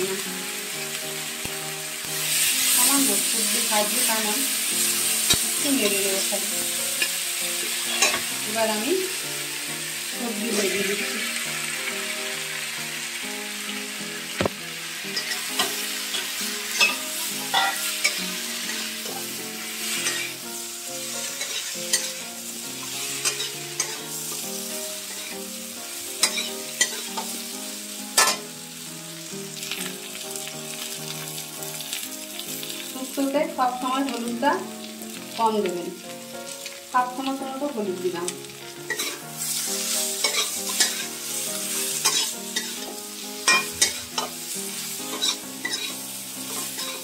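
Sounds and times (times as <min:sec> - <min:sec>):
vegetables sizzling in oil: 0:00.0 - 0:47.0.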